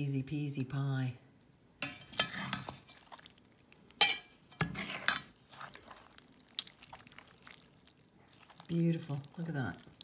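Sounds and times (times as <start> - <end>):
wet squelching of stew: 1.3 - 10.0
metal spoon stirring in pot: 1.8 - 10.0
spoon clinking against pot: 4.0 - 5.3.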